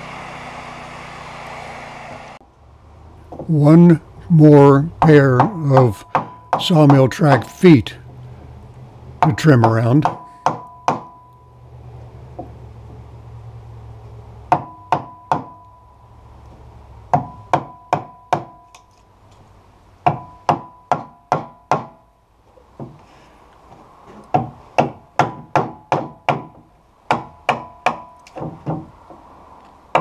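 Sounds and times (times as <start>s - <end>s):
hammer striking a chisel: 5.0s - 7.6s, 9.2s - 11.3s, 14.5s - 15.8s, 17.1s - 18.8s, 20.0s - 22.1s, 24.3s - 28.9s.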